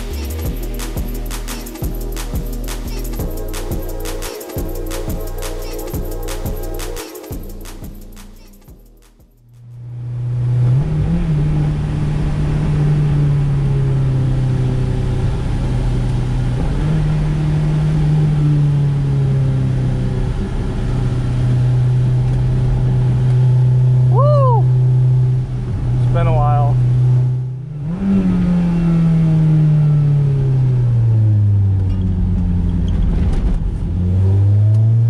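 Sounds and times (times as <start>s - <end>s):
car engine from inside cabin: 9.5s - 35.0s.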